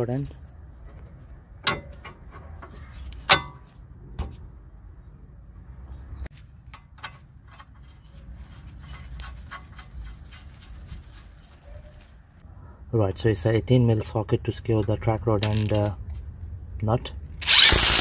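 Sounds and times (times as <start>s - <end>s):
metal clinks and clicks: 15.4s - 15.9s.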